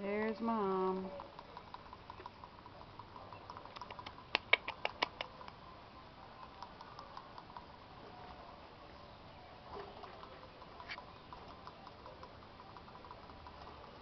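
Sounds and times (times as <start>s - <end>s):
rabbits scratching on wire mesh: 0.0s - 5.6s, 9.6s - 14.0s
sharp clicks: 0.5s - 5.6s.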